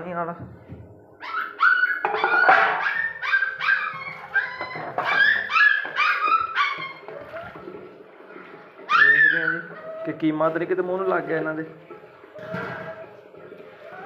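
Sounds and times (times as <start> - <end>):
puppies yelping: 1.2 - 8.0, 8.8 - 10.4, 12.4 - 14.0.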